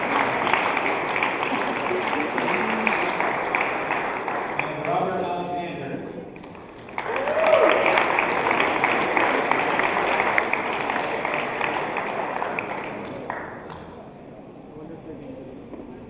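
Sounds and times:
audience applauding: 0:00.0 - 0:05.4, 0:06.4 - 0:13.6.

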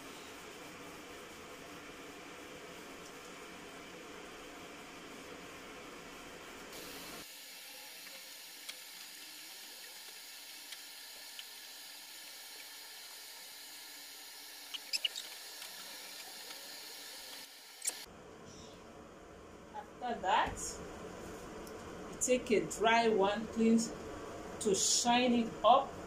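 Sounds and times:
rubber glove squeaking on metal: 0:14.7 - 0:15.5.

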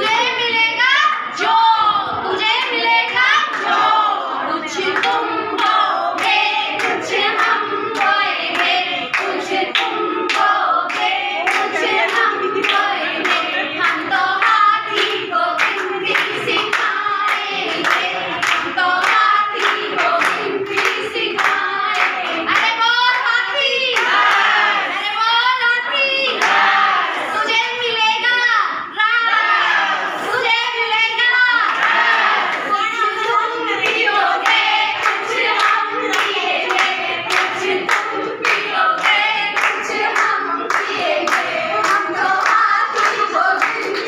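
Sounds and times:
women singing together: 0:00.0 - 0:44.0
hand claps: 0:05.0 - 0:23.3, 0:33.9 - 0:44.0.

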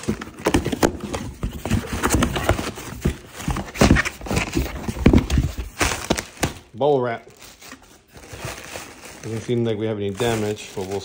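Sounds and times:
cardboard box knocking and scraping: 0:00.0 - 0:06.5
plastic packing rustling: 0:00.0 - 0:11.0.

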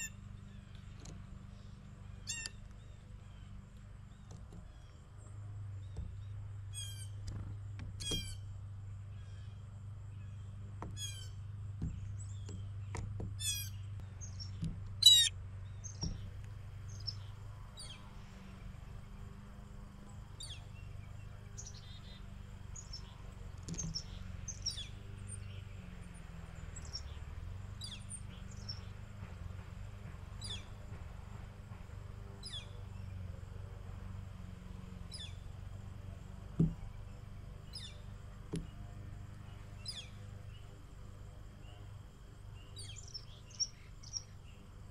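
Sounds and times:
small birds chirping: 0:00.0 - 0:44.9
steady low hum: 0:00.0 - 0:44.9
blue jays calling: 0:15.0 - 0:16.3.

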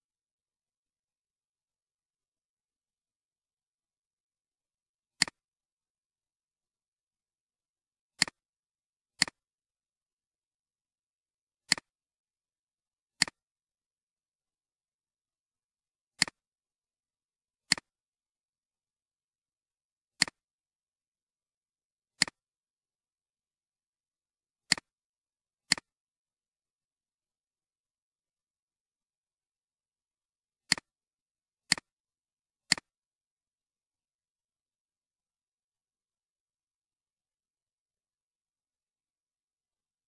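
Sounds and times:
computer mouse button clicking: 0:11.7 - 0:11.9, 0:25.7 - 0:25.9, 0:30.7 - 0:30.9, 0:31.7 - 0:31.9, 0:32.7 - 0:32.9.

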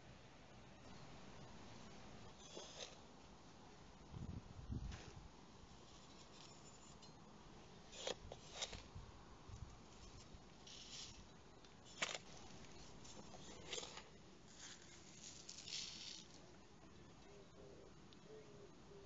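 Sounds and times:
scoop digging in cat litter: 0:02.4 - 0:03.0, 0:07.9 - 0:08.9, 0:11.9 - 0:16.4
litter sprinkling onto soil: 0:08.0 - 0:08.9, 0:09.9 - 0:16.4.

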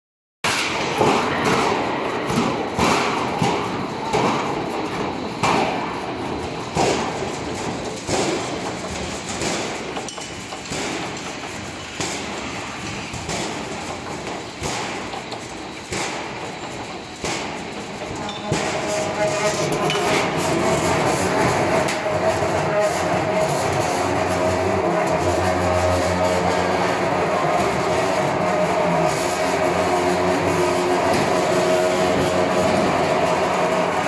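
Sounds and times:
roll forming machine rattling: 0:00.4 - 0:34.0
metal knocks and clanks: 0:00.5 - 0:34.0.

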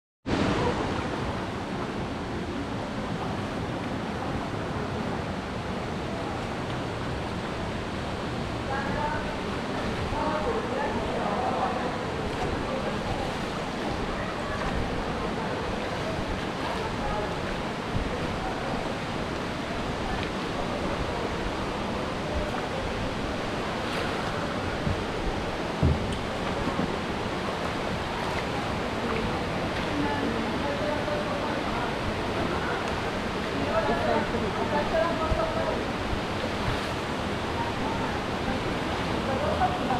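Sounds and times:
river water rushing: 0:00.3 - 0:39.9
wind buffeting microphone: 0:07.0 - 0:29.7
low thump: 0:25.8 - 0:26.9.

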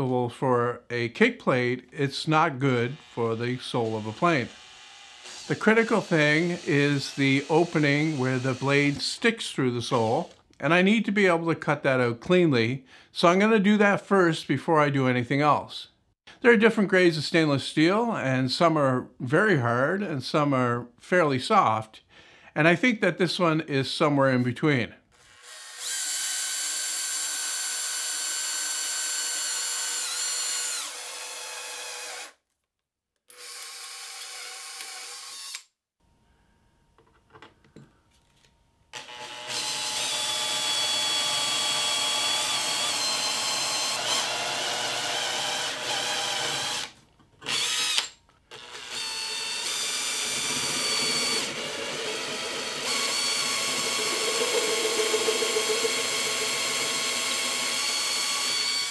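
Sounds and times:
power drill boring through metal: 0:02.7 - 0:09.1, 0:25.2 - 0:32.4, 0:33.3 - 0:35.7, 0:39.0 - 0:58.9.

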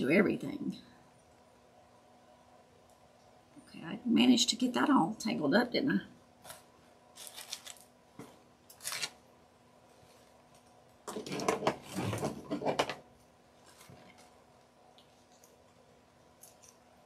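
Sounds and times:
faint steady hum: 0:00.0 - 0:17.0
paper rustling and handling: 0:06.4 - 0:09.2, 0:13.6 - 0:14.4.

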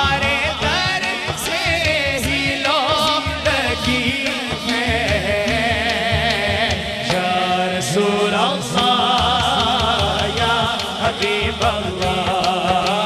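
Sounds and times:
man singing melismatic lines: 0:00.0 - 0:13.0
men chanting low: 0:00.0 - 0:13.0.

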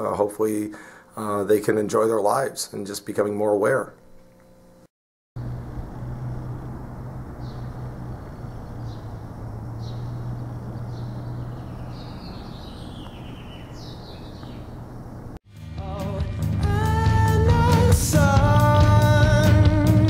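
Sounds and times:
steady low hum: 0:03.9 - 0:15.4
birds chirping: 0:05.4 - 0:15.4.

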